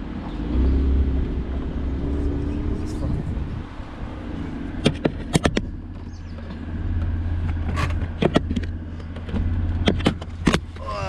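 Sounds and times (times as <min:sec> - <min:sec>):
car engine and road rumble: 0:00.0 - 0:11.0
sharp clicks and knocks: 0:04.8 - 0:10.8.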